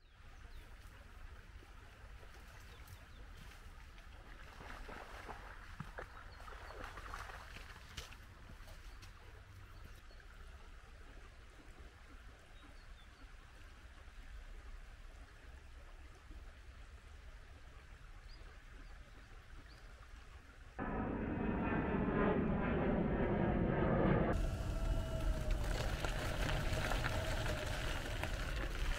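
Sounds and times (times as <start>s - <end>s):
low rumble: 20.8s - 28.9s.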